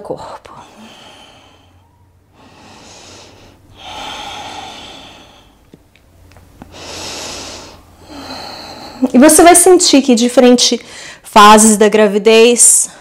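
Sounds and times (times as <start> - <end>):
woman breathing slowly: 0.5 - 5.8, 6.6 - 9.1, 10.8 - 11.2.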